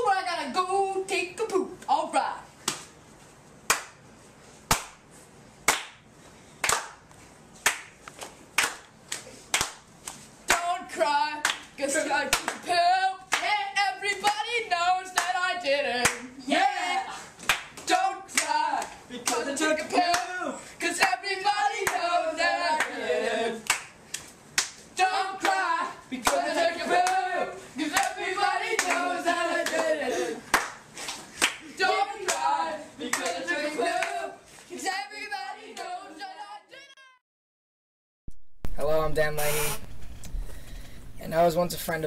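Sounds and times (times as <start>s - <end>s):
hand claps: 2.6s - 2.9s, 3.7s - 4.0s, 4.7s - 5.0s, 5.6s - 6.0s, 6.6s - 10.7s, 11.4s - 11.7s, 12.3s - 12.7s, 15.1s - 15.4s, 16.0s - 16.3s, 17.4s - 19.5s, 20.1s - 20.3s, 21.8s - 22.0s, 23.6s - 24.8s, 25.4s - 25.6s, 26.2s - 26.4s, 27.0s - 27.2s, 27.9s - 28.2s, 28.8s - 29.0s, 29.6s - 29.9s, 30.5s - 31.6s, 32.2s - 32.5s, 33.1s - 33.4s, 34.0s - 34.2s
boys singing: 10.5s - 17.2s, 17.9s - 23.6s, 25.0s - 30.5s, 31.6s - 36.8s.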